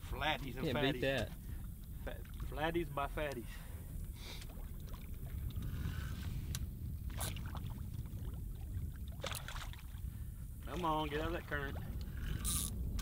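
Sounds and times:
water and wind rumble: 0.0s - 13.0s.

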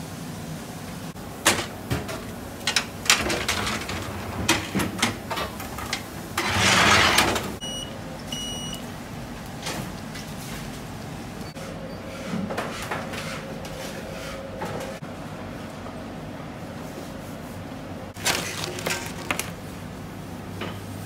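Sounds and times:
short electronic beeps: 7.6s - 8.8s
metal trays clattering: 18.2s - 19.6s.

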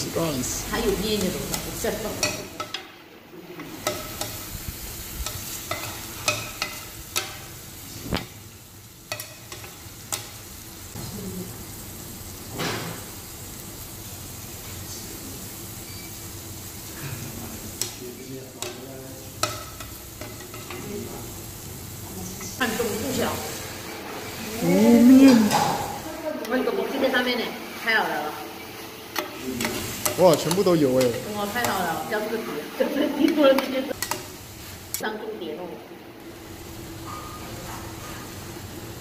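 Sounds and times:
food sizzling in a pan: 0.0s - 39.0s.

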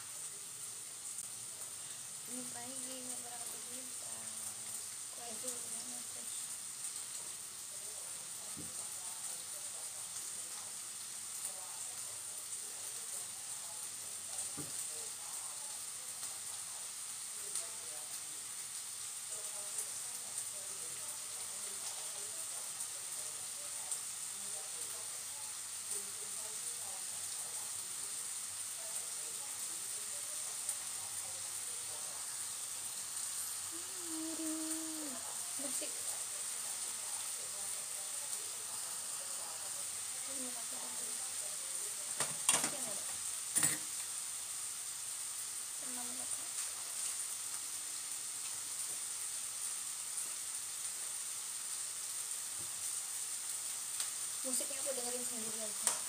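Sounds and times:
steady hiss: 0.0s - 56.0s
steady high hiss: 29.4s - 56.0s.

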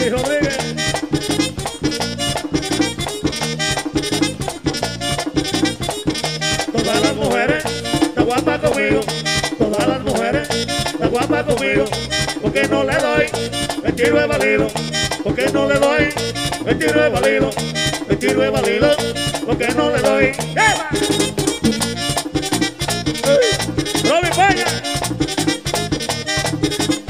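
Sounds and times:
tambora drum: 0.0s - 8.8s, 20.3s - 26.8s
bass line: 0.0s - 27.0s
button accordion melody: 0.0s - 27.0s.

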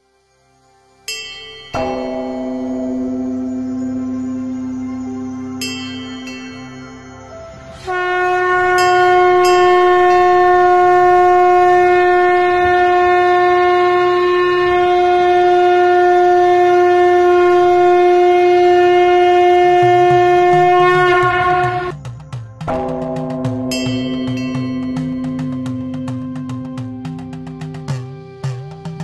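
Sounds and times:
conch shell trumpet long note: 7.8s - 21.9s.

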